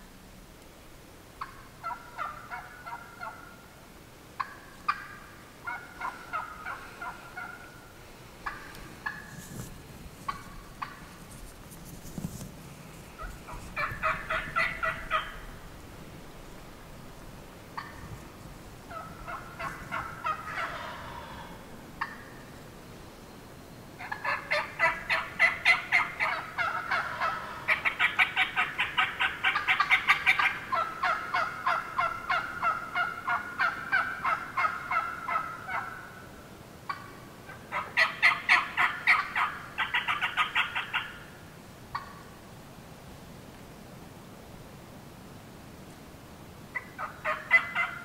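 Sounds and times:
wild turkey yelping: 1.4 - 3.6, 4.4 - 9.4, 10.3 - 11.1, 13.2 - 15.6, 17.7 - 18.1, 18.9 - 22.5, 24.0 - 36.3, 36.9 - 42.3, 46.7 - 48.0.

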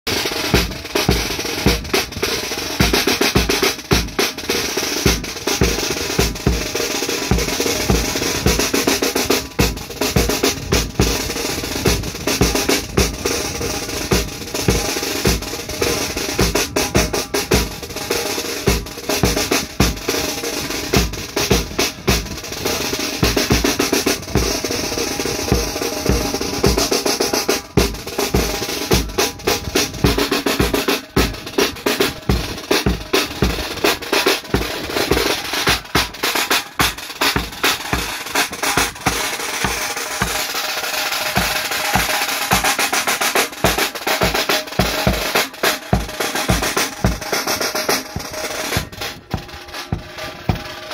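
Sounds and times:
snare drums rolling: 0.0 - 50.9
bass drum beats: 27.6 - 40.5, 48.0 - 50.8.

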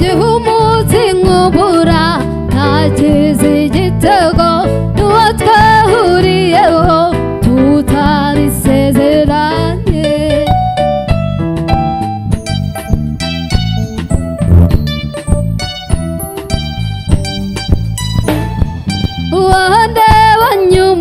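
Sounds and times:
woman singing: 0.0 - 10.6, 19.3 - 21.0
live band playing: 0.0 - 21.0.

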